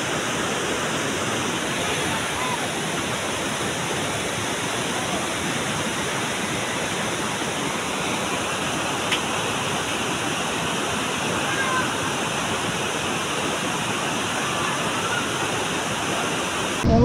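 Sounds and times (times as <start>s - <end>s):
river water rushing: 0.0s - 16.8s.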